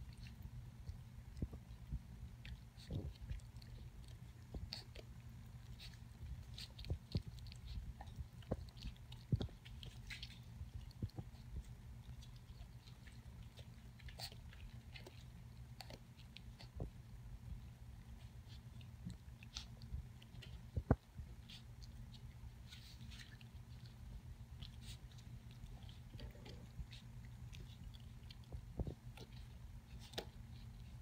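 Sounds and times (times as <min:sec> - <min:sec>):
puppy lapping milk: 0:00.0 - 0:31.0
steady low hum: 0:00.0 - 0:31.0.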